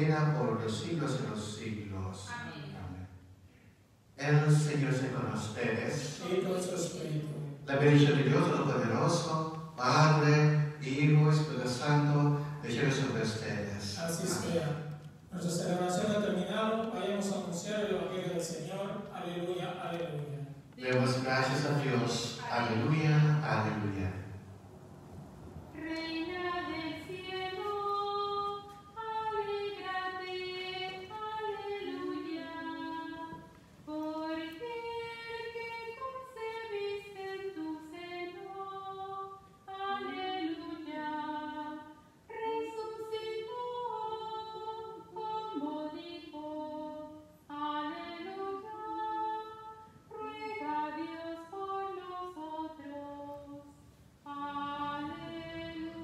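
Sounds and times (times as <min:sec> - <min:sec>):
woman singing a hymn: 0:25.7 - 0:56.0.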